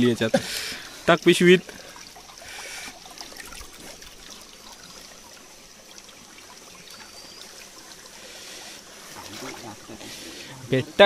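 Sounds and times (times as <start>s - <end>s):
stream trickling over rocks: 0.0s - 11.0s.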